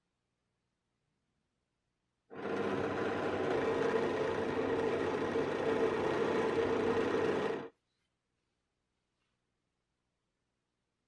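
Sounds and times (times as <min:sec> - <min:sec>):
power tool motor whining: 0:02.3 - 0:07.7.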